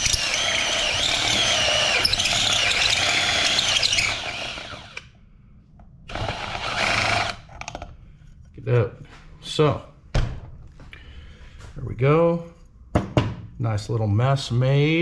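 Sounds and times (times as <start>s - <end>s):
drill cutting metal tube: 0.0s - 5.0s, 6.1s - 7.4s.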